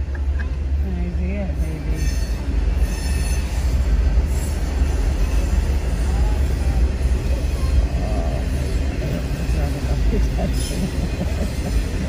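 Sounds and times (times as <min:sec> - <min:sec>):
train rumble: 0:00.0 - 0:12.0
high wheel squeals: 0:01.6 - 0:09.9.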